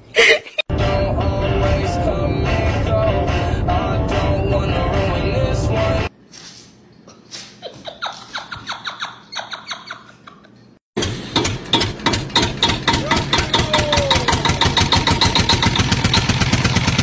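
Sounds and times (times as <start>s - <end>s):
music: 0.7s - 6.1s
rapid even knocking: 11.4s - 16.7s.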